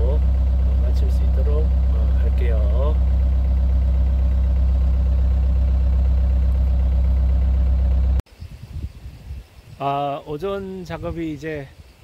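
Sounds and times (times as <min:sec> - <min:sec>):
diesel engine running: 0:00.0 - 0:08.2.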